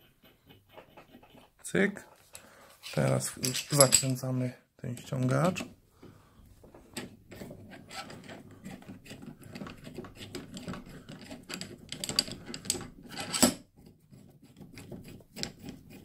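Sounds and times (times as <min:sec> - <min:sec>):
metal clicking and rattling: 0:09.5 - 0:13.6.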